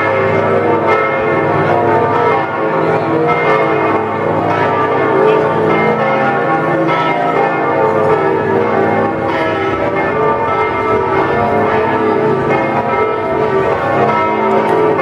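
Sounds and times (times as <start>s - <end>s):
church bells pealing: 0.0s - 15.0s.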